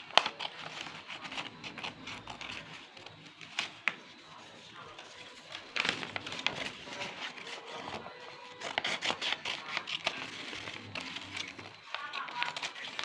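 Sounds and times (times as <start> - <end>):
paper rustling and crinkling: 0.0 - 13.0.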